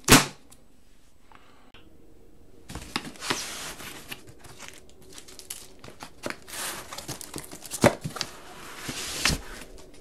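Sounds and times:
rummaging through comic books: 0:02.7 - 0:10.0.

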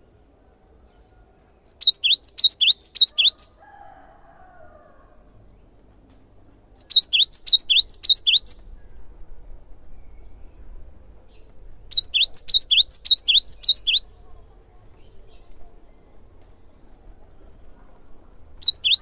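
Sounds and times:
bird singing whistled notes: 0:01.6 - 0:03.5, 0:06.8 - 0:09.0, 0:11.9 - 0:14.1, 0:18.6 - 0:19.0.

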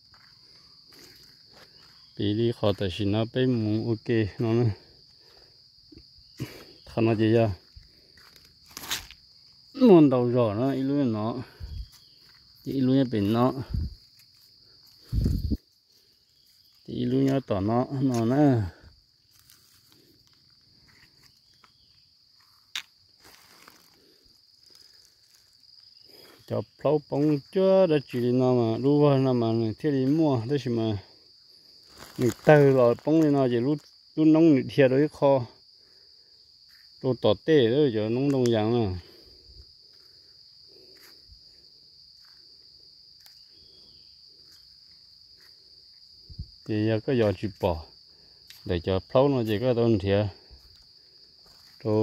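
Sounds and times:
footsteps on dirt path: 0:00.0 - 0:02.1, 0:07.5 - 0:09.4, 0:10.6 - 0:28.4, 0:39.1 - 0:46.6, 0:47.5 - 0:48.8, 0:50.3 - 0:52.0
insects droning: 0:00.0 - 0:52.0
footsteps on dry leaves: 0:07.6 - 0:09.3, 0:19.2 - 0:21.7, 0:22.3 - 0:26.5, 0:31.6 - 0:33.3.

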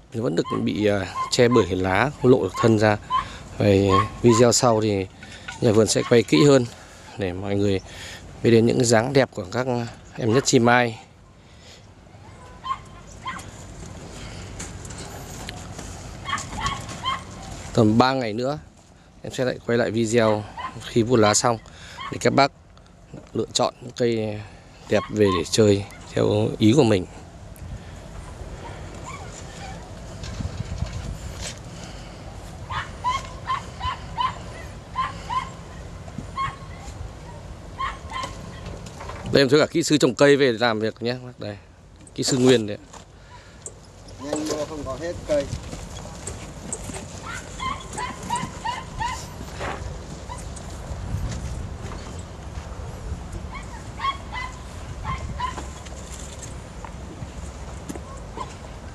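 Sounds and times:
faint outdoor background noise: 0:00.0 - 0:58.9
animal yelps: 0:00.4 - 0:04.6, 0:12.2 - 0:13.5, 0:16.2 - 0:17.5, 0:20.2 - 0:20.8, 0:21.9 - 0:22.2, 0:24.9 - 0:26.0, 0:28.6 - 0:29.9, 0:32.7 - 0:38.7, 0:47.2 - 0:49.4, 0:53.5 - 0:55.8
dog yipping: 0:00.4 - 0:04.6, 0:12.2 - 0:13.5, 0:16.2 - 0:17.5, 0:22.0 - 0:22.2, 0:24.9 - 0:26.1, 0:28.6 - 0:29.9, 0:32.7 - 0:35.8, 0:36.4 - 0:38.7, 0:47.2 - 0:49.4, 0:53.5 - 0:55.8.

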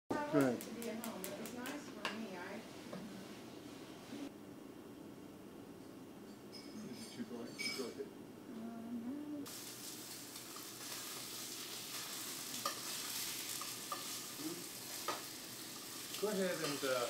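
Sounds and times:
meat sizzling in a skillet: 0:09.4 - 0:17.0
metal utensil clicking on pan: 0:12.5 - 0:14.2, 0:14.9 - 0:17.0.

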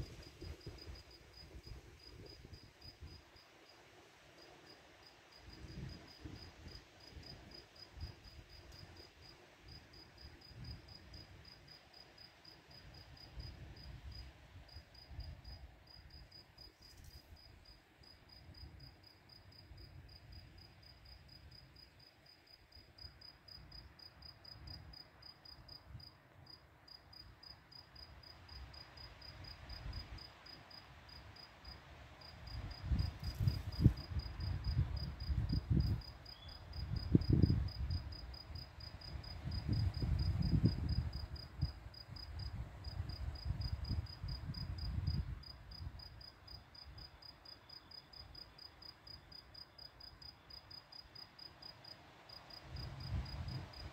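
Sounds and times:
crickets chirping: 0:00.0 - 0:53.9.

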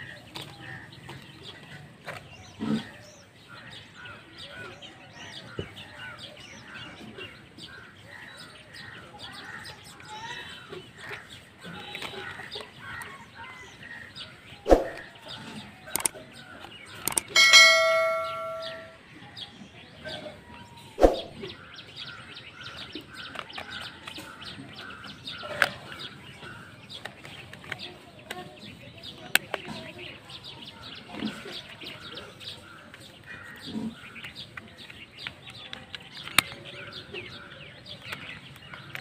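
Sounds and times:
birds chirping: 0:00.0 - 0:39.0
plastic toy parts clicking: 0:11.8 - 0:13.1, 0:15.9 - 0:17.4, 0:23.2 - 0:26.0, 0:26.9 - 0:28.5, 0:34.2 - 0:39.0
bell chime: 0:17.3 - 0:19.0.

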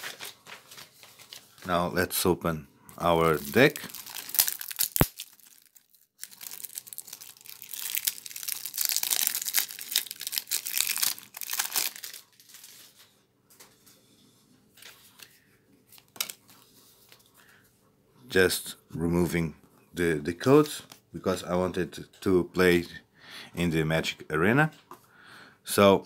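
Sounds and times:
plastic shrink wrap tearing crinkling: 0:00.0 - 0:01.8, 0:03.2 - 0:13.1.

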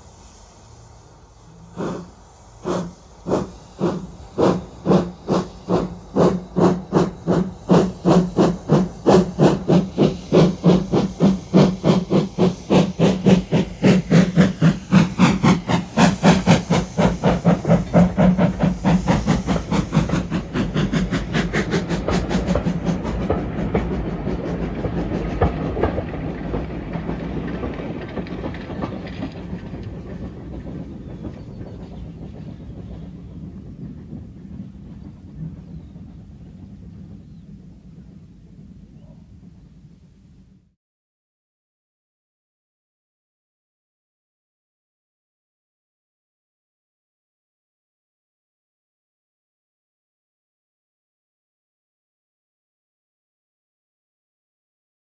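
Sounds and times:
train running: 0:00.0 - 0:40.7
steam locomotive exhaust chuffs: 0:00.0 - 0:40.8.

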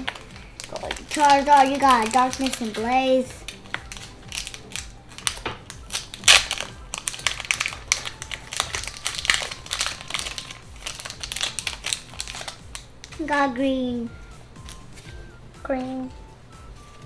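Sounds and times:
foil wrapper crinkling: 0:00.0 - 0:13.2.

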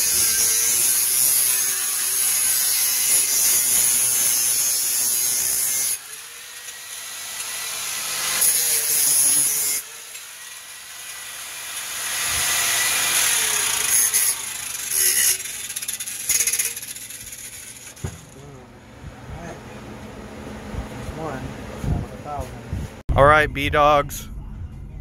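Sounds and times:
angle grinder cutting metal: 0:00.0 - 0:18.4.

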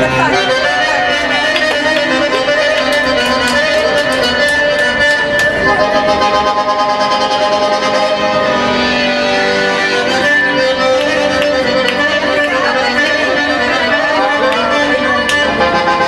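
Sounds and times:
music with long held notes: 0:00.0 - 0:16.0
sharp claps or clicks: 0:01.5 - 0:05.6, 0:10.9 - 0:13.2, 0:14.4 - 0:15.6.

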